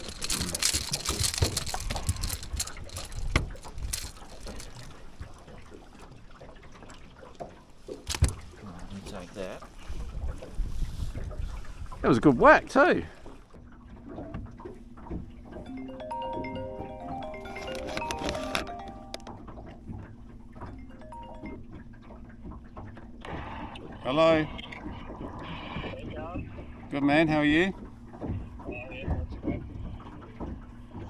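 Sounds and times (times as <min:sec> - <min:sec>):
fish flapping on boat deck: 0:00.0 - 0:05.4
held low musical note: 0:15.7 - 0:19.9, 0:20.7 - 0:22.0.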